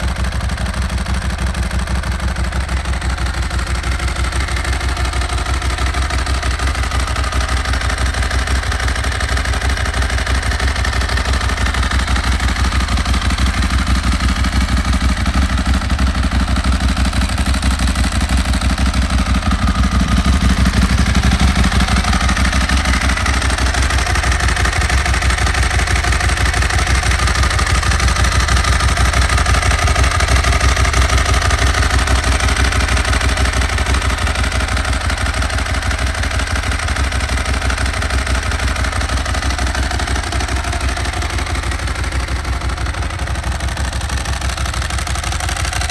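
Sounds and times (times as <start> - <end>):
motorcycle engine idling: 0.0 - 45.9.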